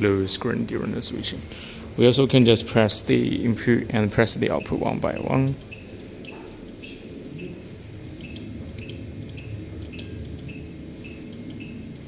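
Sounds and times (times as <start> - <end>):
keypad beeps with clicks: 4.5 - 7.6, 8.2 - 12.0.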